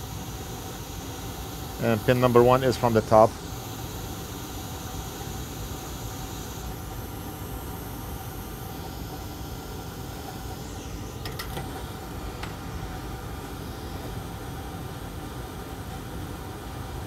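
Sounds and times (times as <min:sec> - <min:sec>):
hot air station hissing: 0:00.0 - 0:17.0.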